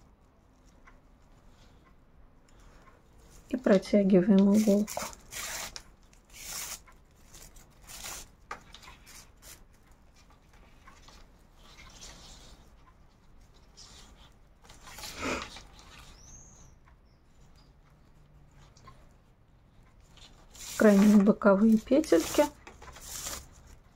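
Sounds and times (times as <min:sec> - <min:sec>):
paper yarn rustling and crackling: 0:03.2 - 0:09.6, 0:20.1 - 0:23.9.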